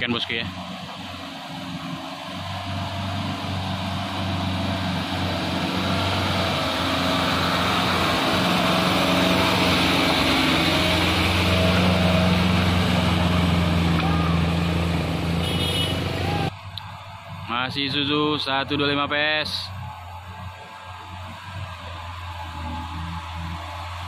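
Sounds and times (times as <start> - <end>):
truck diesel engine climbing: 0.0 - 24.0.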